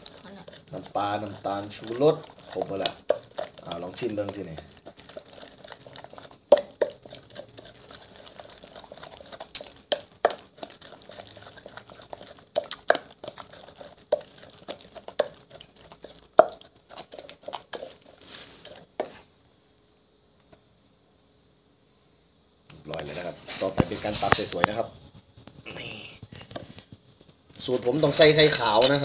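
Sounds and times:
squelching stirring of wet sauce: 0:00.0 - 0:19.2
wooden pestle knocking clay mortar: 0:06.5 - 0:07.1.

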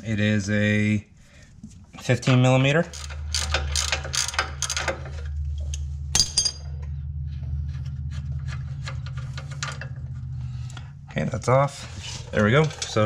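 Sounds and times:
steady low hum: 0:00.0 - 0:13.0
metal parts scraping and tapping: 0:02.3 - 0:06.7, 0:07.6 - 0:10.9, 0:11.8 - 0:13.0
ratchet wrench clicking: 0:02.9 - 0:04.9
sharp metal clink: 0:06.2 - 0:06.7.

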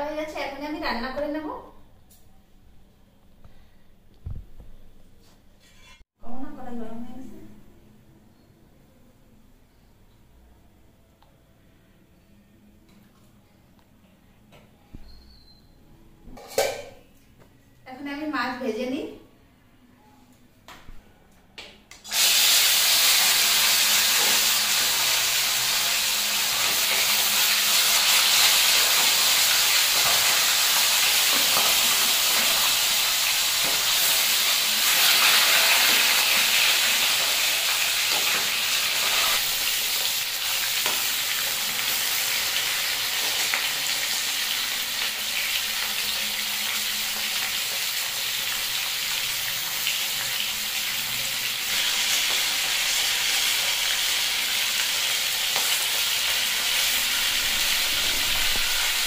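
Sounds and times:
fish sizzling in hot oil: 0:22.1 - 0:59.0.

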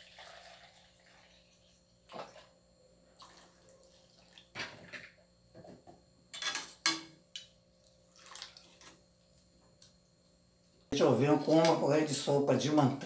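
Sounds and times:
milk pouring and splashing: 0:00.0 - 0:04.6, 0:07.8 - 0:09.0.

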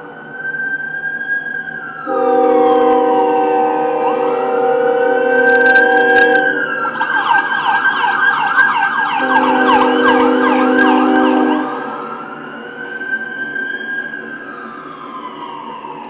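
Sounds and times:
emergency siren wailing and yelping: 0:00.0 - 0:16.0
deep horn chord blasts: 0:02.1 - 0:06.6, 0:09.2 - 0:12.1.

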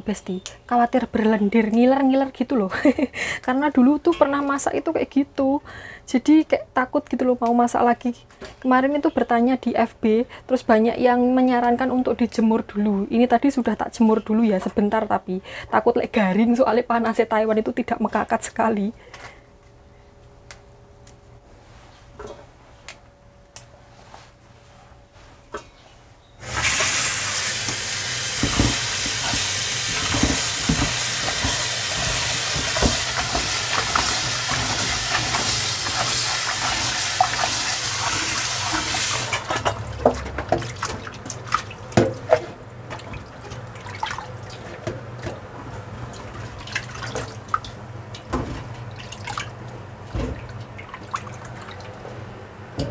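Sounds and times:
water rushing into sink: 0:26.4 - 0:44.7
objects knocking in sink: 0:28.4 - 0:35.4.

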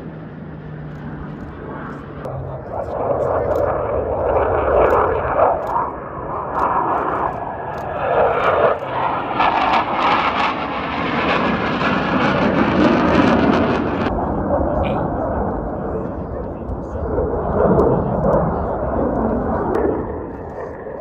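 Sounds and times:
military jet flying past: 0:00.0 - 0:21.0.

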